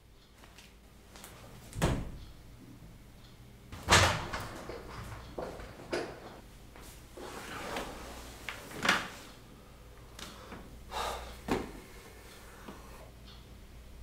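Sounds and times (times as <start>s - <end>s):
household knocks and clunks: 3.8s - 6.4s.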